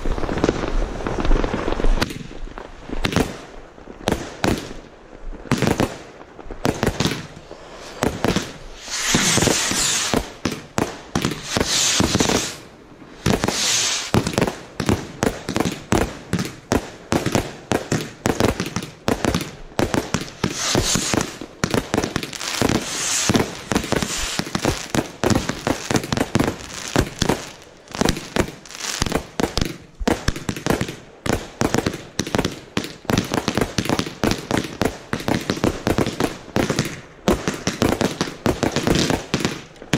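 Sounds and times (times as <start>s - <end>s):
fireworks shots and bangs: 0.0s - 4.8s, 5.4s - 39.9s
firework hiss: 6.4s - 36.9s.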